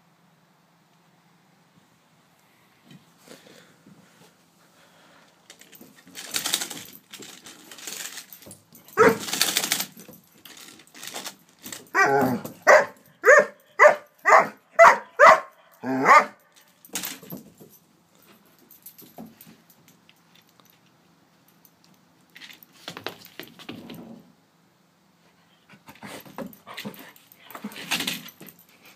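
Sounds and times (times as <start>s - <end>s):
dog barking: 9.0s - 9.3s, 12.0s - 16.4s.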